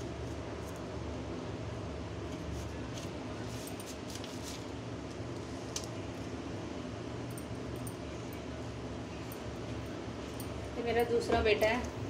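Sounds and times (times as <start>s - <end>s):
steady low hum: 0.0s - 12.0s
hands rustling dough on paper: 2.2s - 5.9s.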